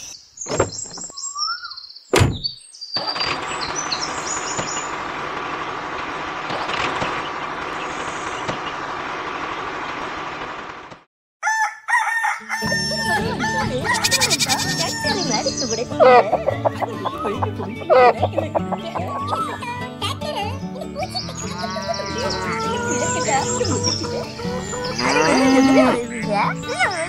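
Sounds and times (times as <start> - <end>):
rooster crowing: 11.4 - 15.2
music: 12.6 - 27.0
chickens clucking: 12.8 - 19.5, 21.1 - 27.0.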